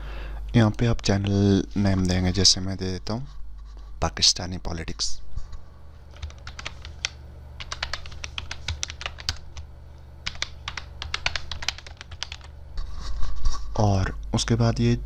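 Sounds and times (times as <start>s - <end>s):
steady low hum: 0.0s - 15.0s
typing on computer keyboard: 6.1s - 9.6s, 10.2s - 12.5s.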